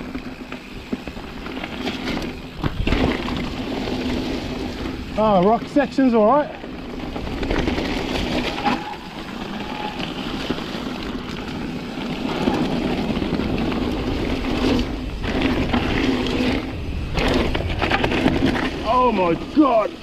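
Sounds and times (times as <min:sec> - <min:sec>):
bike rattling: 0:00.0 - 0:20.0
bike tyres crunching over gravel: 0:00.0 - 0:20.0.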